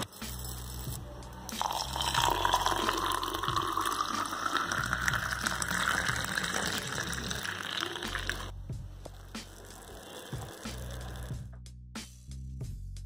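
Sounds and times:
milk pouring into metal tumbler: 0:01.5 - 0:08.5.

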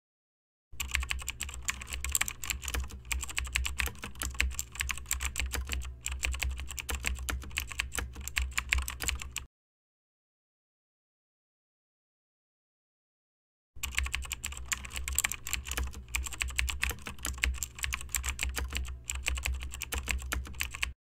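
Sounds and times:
keyboard typing: 0:00.8 - 0:09.5, 0:13.8 - 0:21.0.

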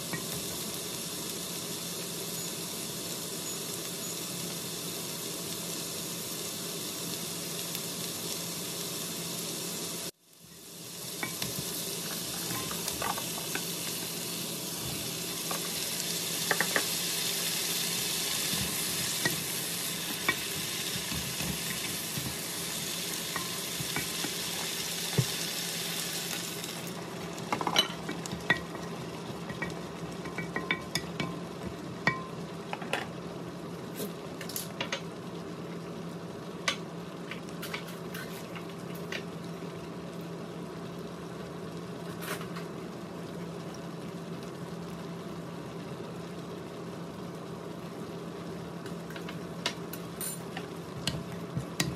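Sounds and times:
vegetables sizzling in a wok: 0:00.0 - 0:51.9.

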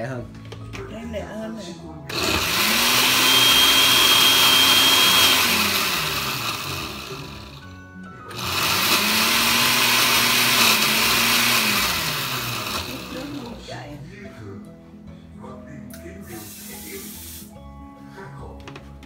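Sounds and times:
blender motor grinding: 0:02.1 - 0:13.6.

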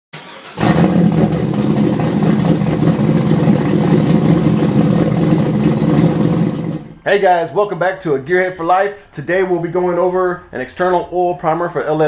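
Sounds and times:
car engine running: 0:00.3 - 0:07.0.

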